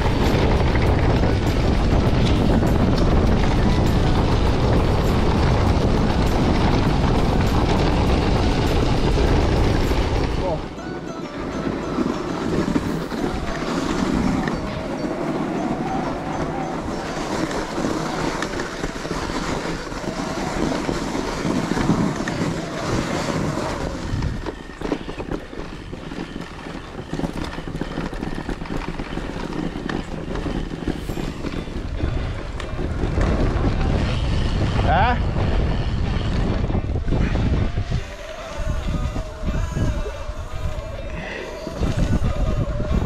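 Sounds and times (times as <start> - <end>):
wind on microphone: 0.0 - 10.8, 11.6 - 43.0
tyres crunching on gravel: 0.0 - 34.6
bike rattling: 0.0 - 43.0.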